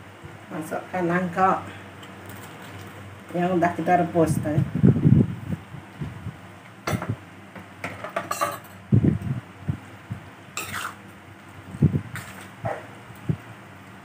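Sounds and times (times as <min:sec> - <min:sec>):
metal ladle scraping a wok: 0:10.6 - 0:11.0.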